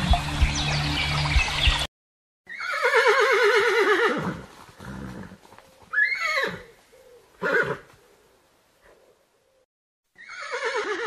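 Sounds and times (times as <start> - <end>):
horse whinnying: 2.5 - 6.8, 7.4 - 7.9, 10.2 - 11.0.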